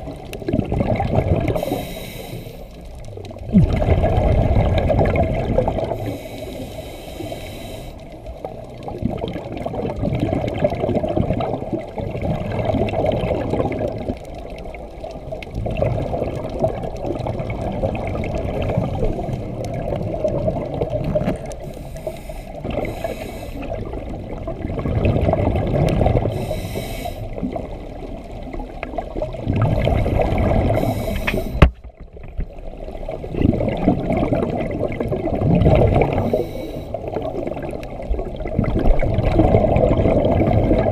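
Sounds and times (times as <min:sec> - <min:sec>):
exhaled bubbles surging: 0:00.0 - 0:07.4, 0:08.3 - 0:26.6, 0:27.2 - 0:40.9
regulator hissing inhale: 0:01.5 - 0:02.9, 0:05.9 - 0:08.3, 0:21.6 - 0:23.8, 0:26.3 - 0:27.4, 0:30.0 - 0:31.6, 0:36.2 - 0:37.0.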